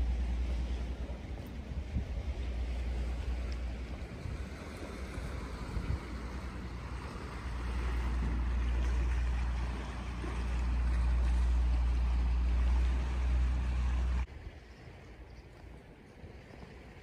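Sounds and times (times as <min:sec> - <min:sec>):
boat engine drone: 0:00.0 - 0:17.0
outdoor ambience: 0:00.0 - 0:17.0
wind and water hiss: 0:00.0 - 0:17.0.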